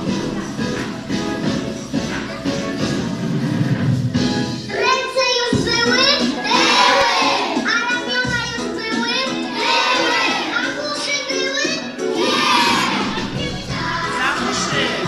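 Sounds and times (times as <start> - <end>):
music: 0.0 - 15.0
children singing: 5.5 - 15.0.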